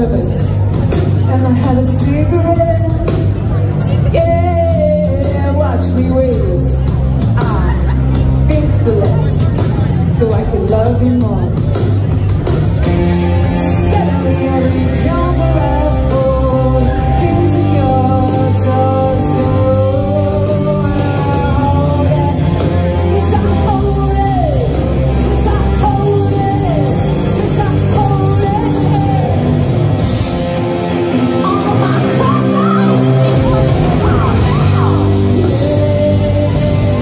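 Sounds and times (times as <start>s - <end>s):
woman singing: 0.0s - 0.6s, 1.2s - 3.4s, 4.0s - 11.7s, 13.5s - 29.6s, 31.4s - 37.0s
drums: 0.0s - 37.0s
electric guitar: 0.0s - 37.0s.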